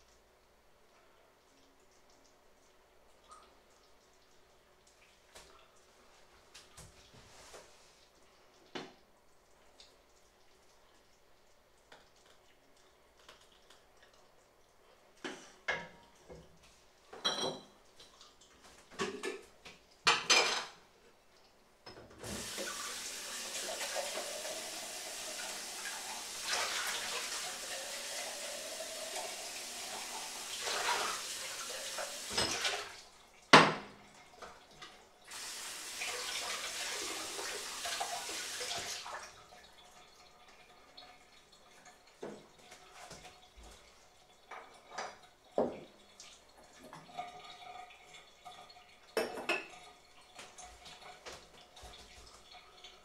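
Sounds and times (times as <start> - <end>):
dishes clattering: 17.2 - 17.8, 20.1 - 20.8, 32.2 - 32.9, 49.2 - 49.8
kitchen tap running into sink: 21.8 - 53.0.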